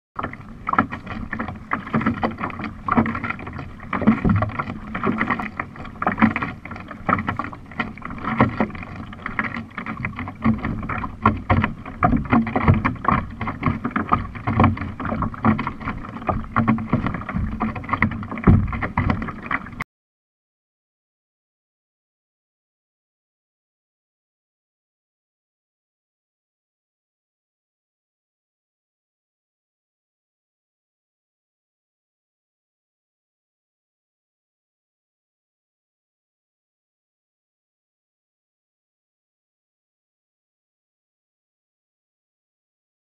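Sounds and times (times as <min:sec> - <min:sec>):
water slapping against hull: 0:00.2 - 0:19.8.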